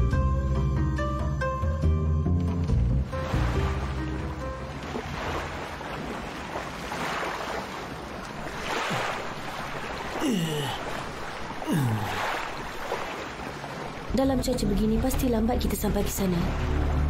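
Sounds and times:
wind: 1.1 - 17.0
waves splashing around a boat: 3.0 - 14.8, 15.8 - 17.0.

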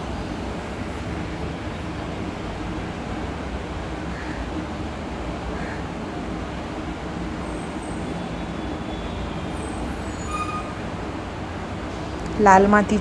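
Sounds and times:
bus and cars passing: 0.0 - 13.0.

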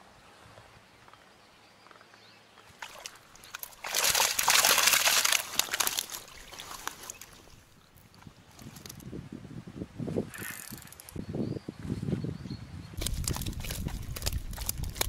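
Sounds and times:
water pouring through mesh net: 2.8 - 7.6, 13.0 - 15.0.

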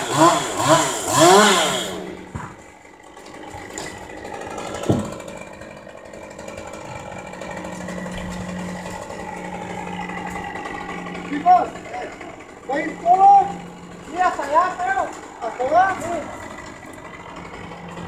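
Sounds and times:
chainsaw idling: 0.0 - 18.0.

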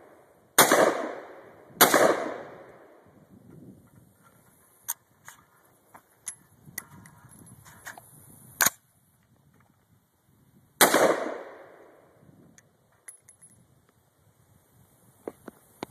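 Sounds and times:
loud gunshot: 0.6 - 2.7, 10.8 - 11.8.

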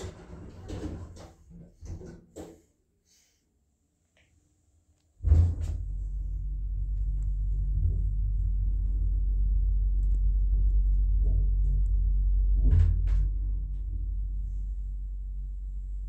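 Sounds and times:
lift travelling low rumble: 5.2 - 16.0.

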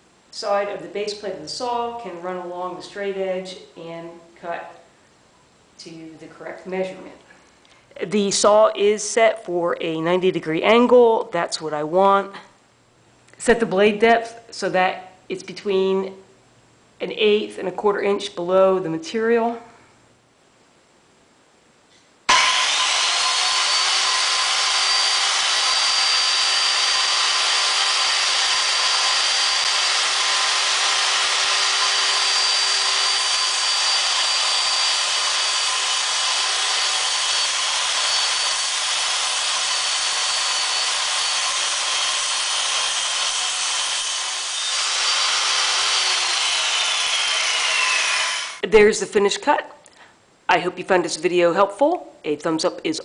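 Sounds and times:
circular saw whining: 22.3 - 48.6.

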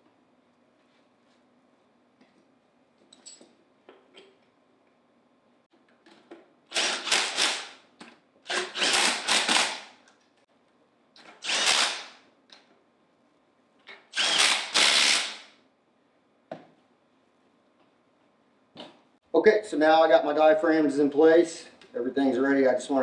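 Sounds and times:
impact driver bursts: 6.7 - 7.8, 8.4 - 9.9, 11.4 - 12.2, 14.1 - 15.6.

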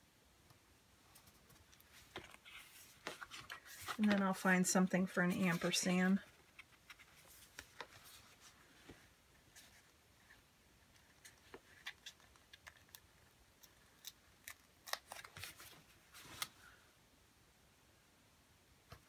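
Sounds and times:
sticker paper crinkling: 1.2 - 4.6, 11.0 - 16.5.

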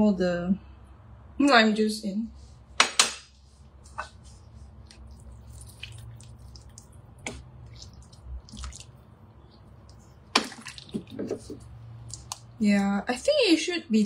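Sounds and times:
liquid sloshing and dripping: 4.8 - 12.6.

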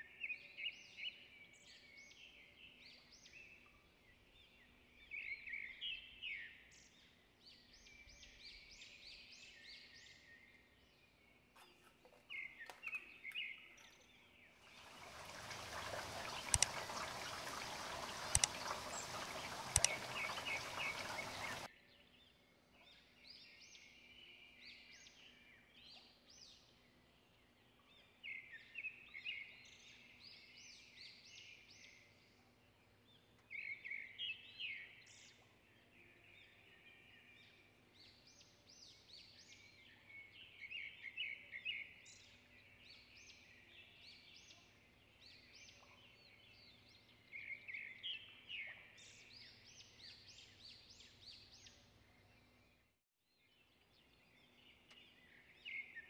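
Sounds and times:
birds singing: 0.0 - 26.8, 53.6 - 56.0
sharp clicks: 16.4 - 16.8, 18.3 - 21.7.

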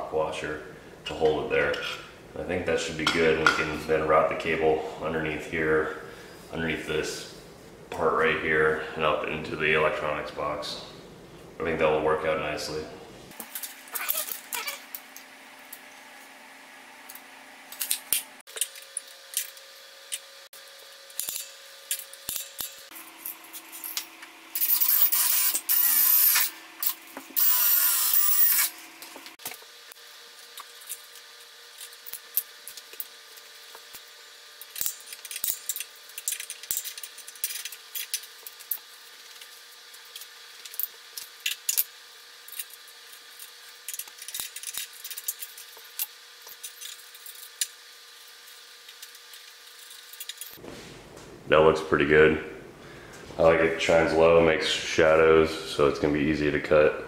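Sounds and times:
tools being handled: 21.1 - 29.6, 34.6 - 47.7, 48.9 - 50.6
cordless power drill: 24.7 - 26.6, 27.4 - 28.8.

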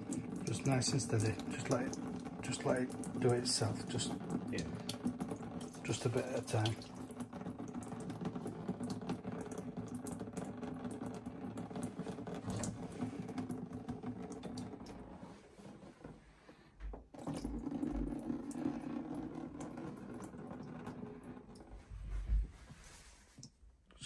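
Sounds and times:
water trickling into plastic tub: 0.0 - 23.6.

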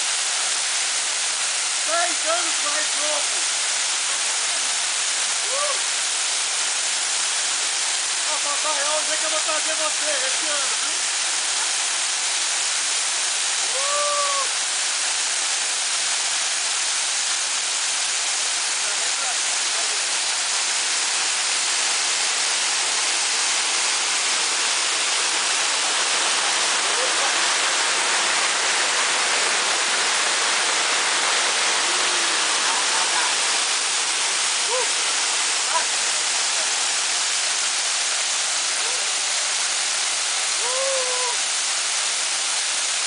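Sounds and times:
waterfall roaring onto rocks: 0.0 - 43.0
person calling out: 5.4 - 5.9, 13.6 - 14.6, 34.6 - 35.1, 38.8 - 39.1, 40.6 - 41.4.

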